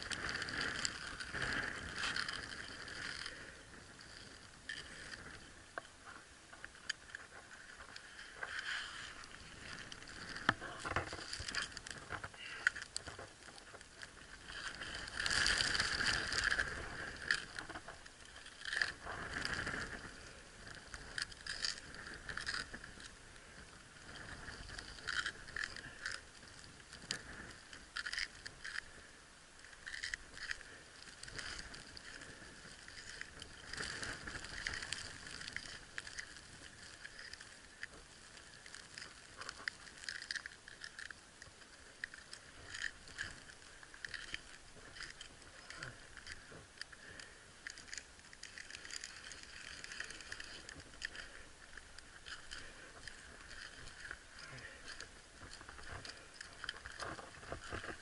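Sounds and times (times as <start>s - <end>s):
ice axe and crampons scraping ice: 0.0s - 5.4s, 6.8s - 23.1s, 29.8s - 41.2s.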